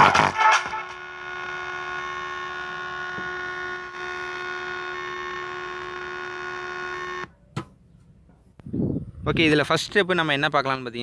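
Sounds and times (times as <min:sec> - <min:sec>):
loudspeaker humming buzz: 0:00.0 - 0:07.3.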